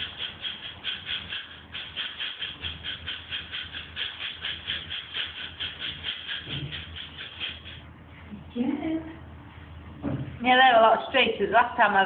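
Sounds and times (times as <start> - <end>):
rhythmic water swishing: 0.0 - 8.1.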